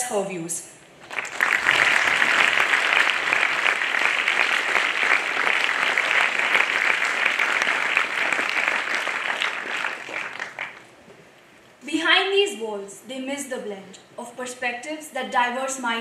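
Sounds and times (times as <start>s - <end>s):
audience applauding: 1.0s - 10.9s.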